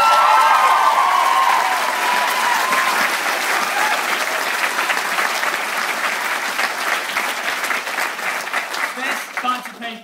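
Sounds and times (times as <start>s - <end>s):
cheering whoops: 0.0s - 4.9s
audience applauding: 0.0s - 10.0s.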